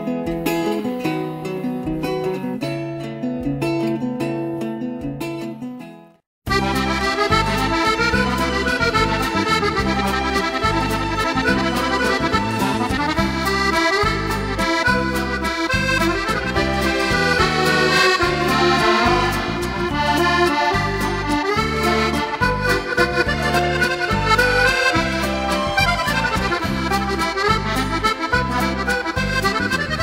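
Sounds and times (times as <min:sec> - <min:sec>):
lively instrumental music with bass beat: 0:06.5 - 0:30.0.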